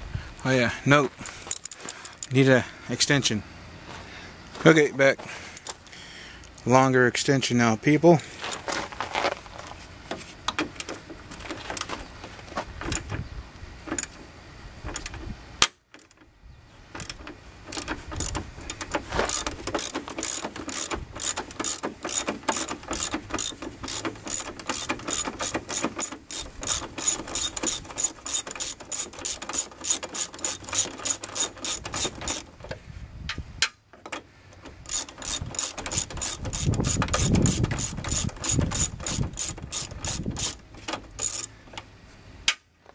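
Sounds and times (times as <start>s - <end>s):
socket ratchet clicking: 1.5s - 2.4s, 17.0s - 32.5s, 34.8s - 40.6s, 41.2s - 41.5s.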